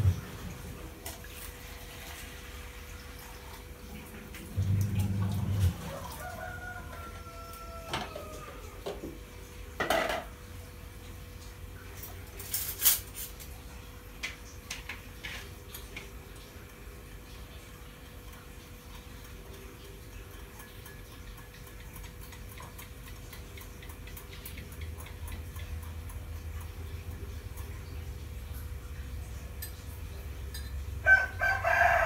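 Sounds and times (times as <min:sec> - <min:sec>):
short low hum: 0:04.5 - 0:06.1
rooster crowing faintly: 0:05.3 - 0:08.8, 0:31.0 - 0:32.0
dishes clinking and clattering: 0:09.8 - 0:10.4, 0:12.0 - 0:13.5, 0:14.2 - 0:16.2, 0:29.4 - 0:30.9.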